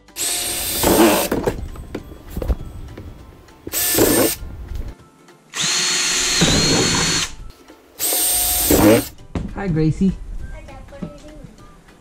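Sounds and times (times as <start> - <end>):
cordless drill drilling plastic: 0.2 - 1.3, 3.7 - 4.4, 5.6 - 7.4, 8.0 - 9.1.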